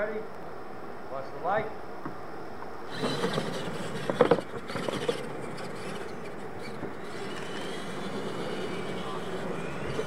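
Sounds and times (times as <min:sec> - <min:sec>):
toy truck motors and tyres: 0:02.9 - 0:10.0.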